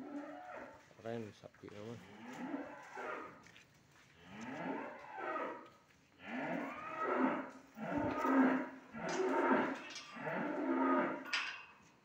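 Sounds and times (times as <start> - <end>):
cattle mooing: 6.2 - 11.4.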